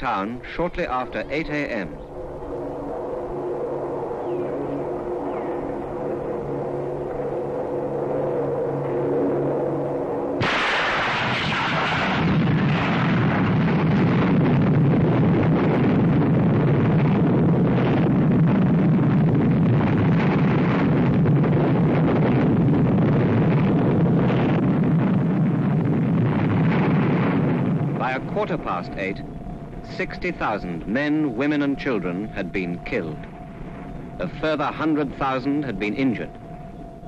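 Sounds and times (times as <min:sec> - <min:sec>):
loud rushing rumble: 0:01.5 - 0:34.3
explosion blast: 0:10.2 - 0:32.0.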